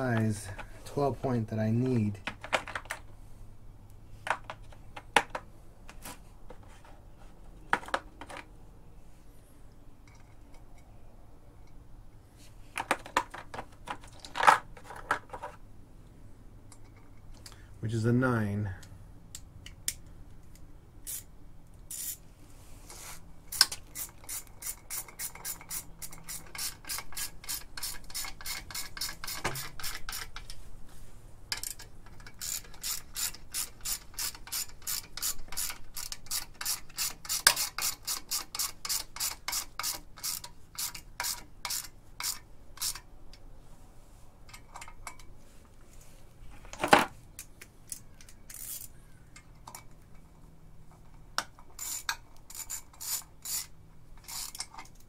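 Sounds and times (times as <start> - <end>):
ratchet clicking: 21.0 - 21.3, 21.9 - 22.2, 23.5 - 30.4, 31.5 - 43.0, 47.9 - 48.9, 51.8 - 55.0.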